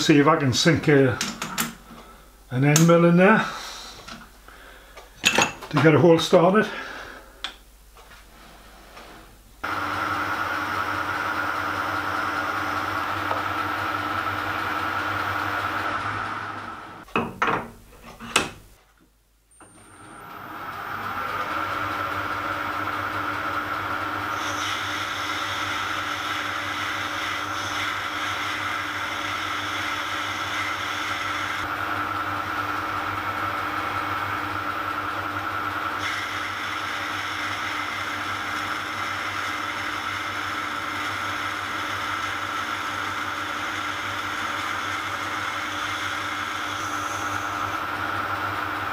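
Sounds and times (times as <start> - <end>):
metal lathe humming and whining: 9.6 - 17.0, 19.6 - 48.9
tool cutting hiss: 24.3 - 31.6, 36.0 - 37.9, 43.6 - 47.7.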